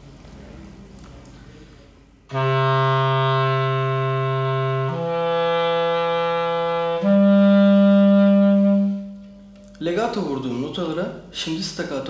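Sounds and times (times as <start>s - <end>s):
clarinet playing legato notes: 2.3s - 9.7s.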